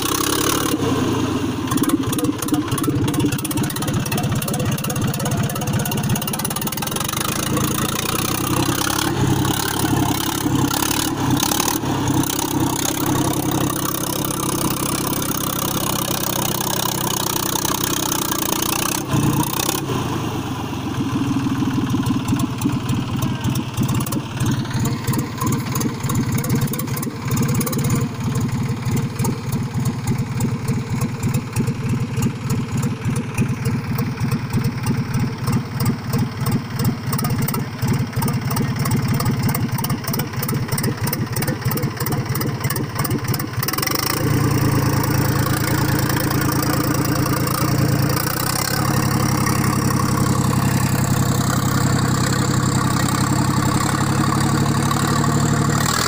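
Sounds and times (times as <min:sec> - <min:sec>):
blade pushing soil: 0:00.0 - 0:20.1
tractor diesel engine running: 0:00.0 - 0:56.0.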